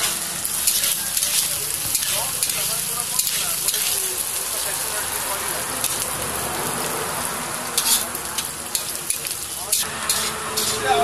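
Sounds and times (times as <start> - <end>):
metal spatula scraping pan: 0.0 - 4.0, 7.8 - 11.0
onions sizzling in hot oil: 0.0 - 11.0.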